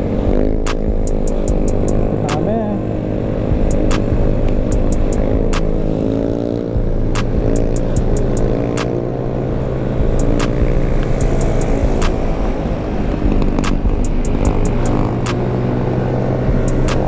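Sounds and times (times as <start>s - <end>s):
road and wind rumble: 0.0s - 17.0s
scooter engine running: 0.0s - 17.0s
backing beat with snare hits: 0.5s - 2.6s, 3.5s - 5.8s, 6.8s - 9.0s, 10.0s - 12.5s, 13.2s - 15.4s, 16.5s - 17.0s.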